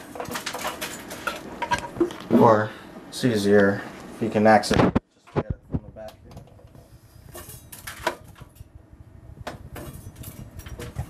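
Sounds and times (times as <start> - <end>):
metal knocks and scraping: 0.0 - 2.6, 5.3 - 8.7, 9.4 - 11.0.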